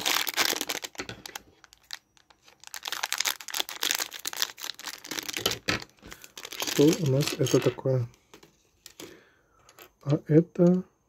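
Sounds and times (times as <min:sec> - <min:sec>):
plastic bag crinkling: 0:00.0 - 0:08.1.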